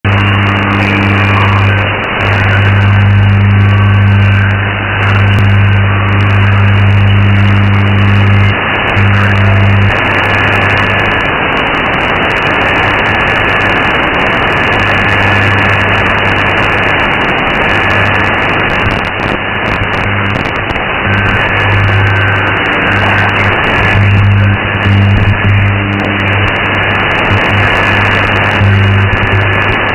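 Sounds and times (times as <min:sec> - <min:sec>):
radio hiss and static: 0:00.0 - 0:29.9
strong low hum: 0:00.0 - 0:29.9.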